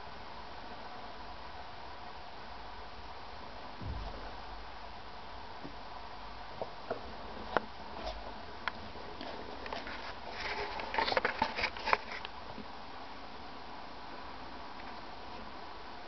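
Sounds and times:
hamster rustling through bedding: 7.4 - 12.2.

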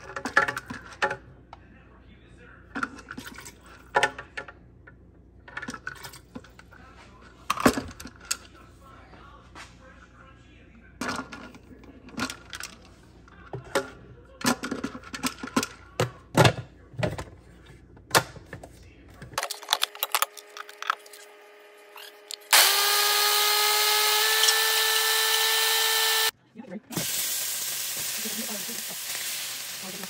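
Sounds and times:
blender motor running: 22.0 - 26.3.

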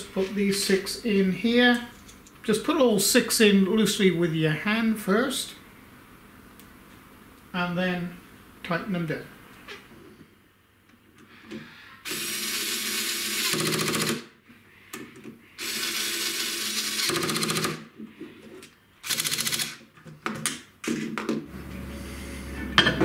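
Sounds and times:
electric screwdriver running: 12.1 - 14.2, 15.6 - 17.8, 19.0 - 19.8.

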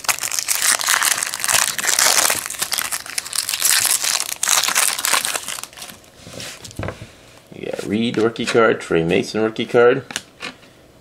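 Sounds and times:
foil wrapper crinkling: 0.0 - 6.1.

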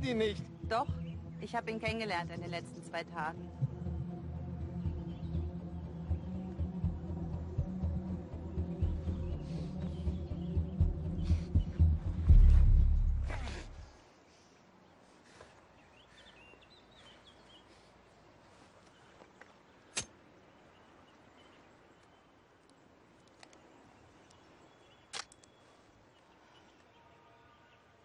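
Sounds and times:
faint bird chirps: 14.8 - 28.0
sharp clicks: 25.1 - 25.6.

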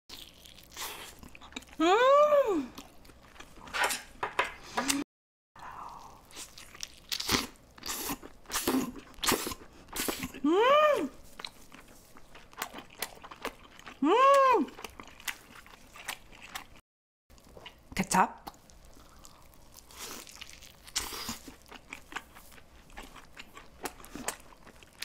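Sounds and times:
chewing and biting food: 0.1 - 1.8, 6.0 - 10.4, 11.3 - 14.0, 14.7 - 25.0
person humming mmm: 1.7 - 2.8, 10.2 - 11.2, 14.0 - 14.8.

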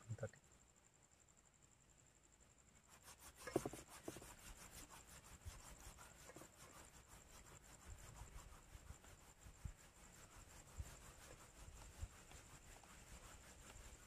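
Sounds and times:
hands rubbing dry bait mix: 2.9 - 14.0.

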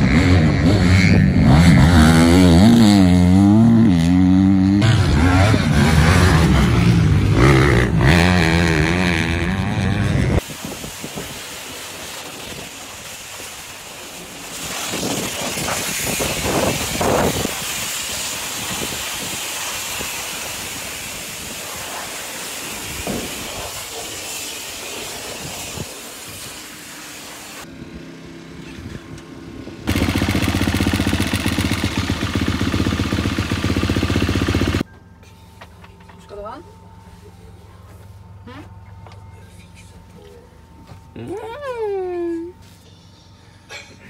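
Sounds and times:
pressure washer spraying water: 10.4 - 27.7, 29.9 - 34.8
engine running loudly: 27.8 - 34.8.

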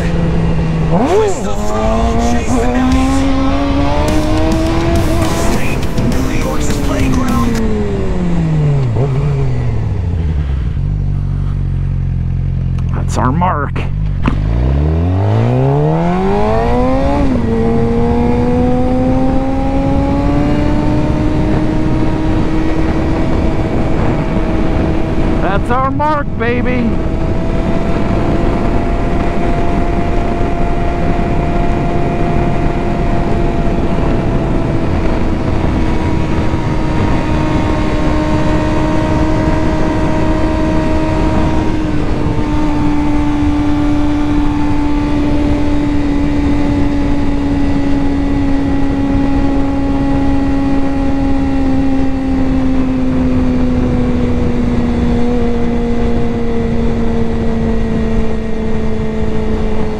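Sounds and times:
wind rush: 0.0 - 12.2, 13.9 - 59.9
motorcycle engine running: 0.0 - 59.9.

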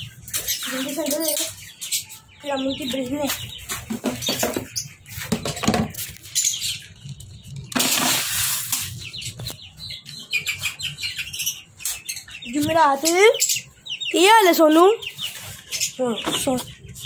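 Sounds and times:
birds chirping: 0.0 - 17.0
seed rustling and pouring: 7.8 - 8.9.

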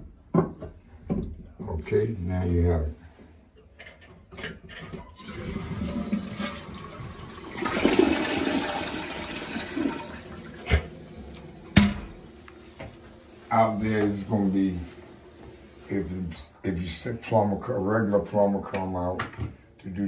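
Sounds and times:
toilet flushing: 5.0 - 17.6.

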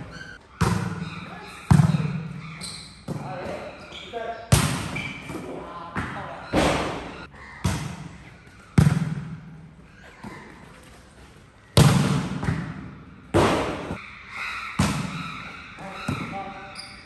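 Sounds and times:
hand slapping volleyball: 11.8 - 14.0.

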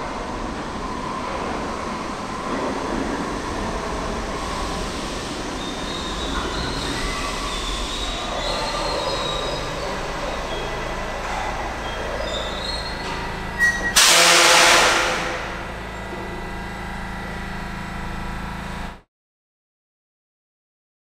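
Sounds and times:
train rumbling: 0.0 - 19.0
train wheels and brakes squealing: 0.2 - 16.4
air brake hiss: 12.5 - 15.6.

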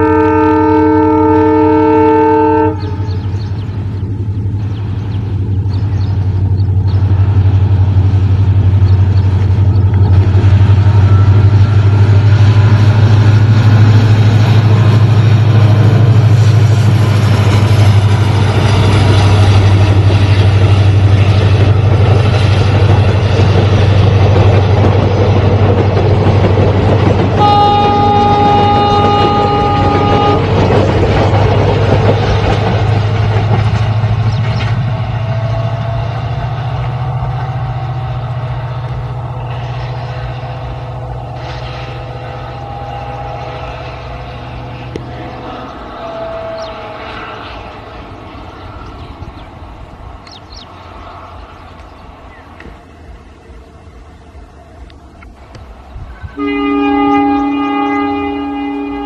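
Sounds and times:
train horn blast: 0.0 - 3.2, 27.3 - 31.4, 39.2 - 47.8, 56.3 - 59.0
diesel locomotive engine throb: 0.0 - 59.0
train wheels rumbling on track: 0.0 - 59.0.

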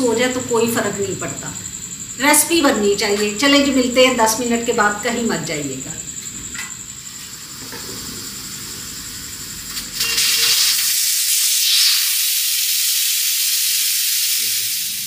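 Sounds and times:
pressure cooker steam hissing: 7.4 - 15.0.

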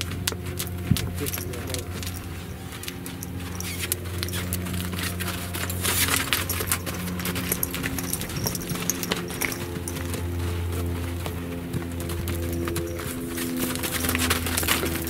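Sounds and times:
hoof thuds on sand: 0.0 - 15.0
saddle and bridle jingling: 0.0 - 15.0
steady low hum: 0.0 - 15.0.

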